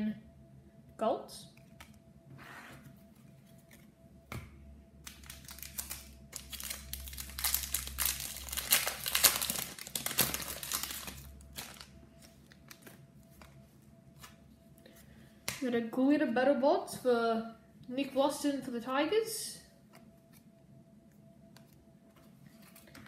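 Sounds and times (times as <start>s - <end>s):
foil pack tearing and crinkling: 5.1s - 11.9s.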